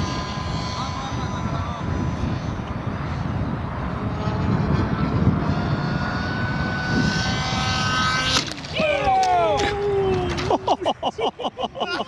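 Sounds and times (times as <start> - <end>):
model plane engine droning: 0.0 - 8.8.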